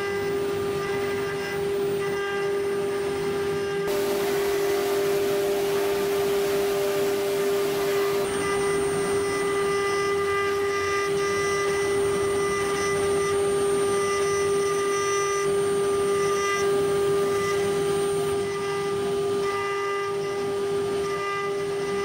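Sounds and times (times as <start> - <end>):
router spindle tone: 0.0 - 22.0
bit cutting metal hiss: 3.9 - 13.0.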